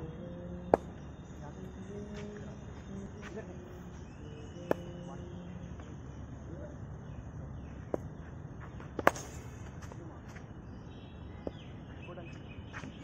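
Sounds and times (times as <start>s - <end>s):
cricket ball knocking on wooden bat: 4.6s - 5.0s.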